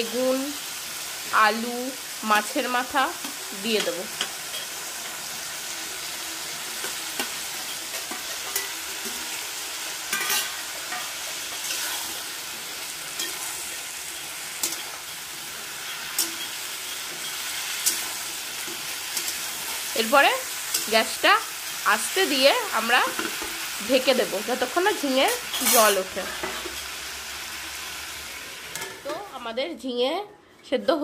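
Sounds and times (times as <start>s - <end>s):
vegetables sizzling in oil: 0.0s - 29.9s
metal spatula scraping pan: 3.2s - 19.9s, 25.3s - 27.0s.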